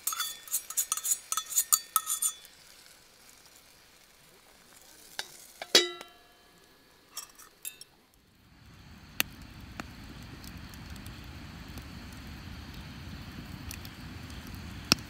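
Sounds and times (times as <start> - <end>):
metal clinks: 0.0 - 2.4
fire crackling pops: 0.0 - 15.0
metal lid clanking onto pot: 5.6 - 6.2
wood fire rumbling: 8.1 - 15.0.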